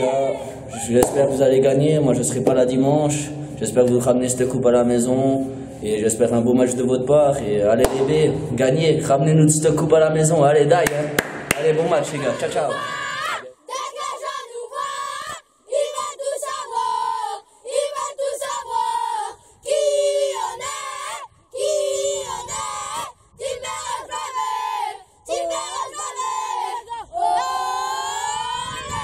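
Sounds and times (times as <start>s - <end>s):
boys shouting a chant: 11.9s - 29.0s.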